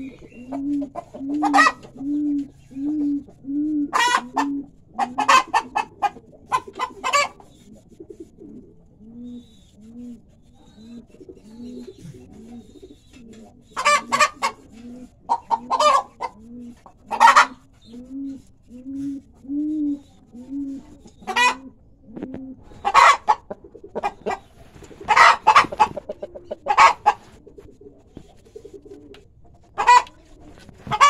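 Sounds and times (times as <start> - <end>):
hen clucking: 0.0 - 31.0
hen squawking: 25.0 - 27.3.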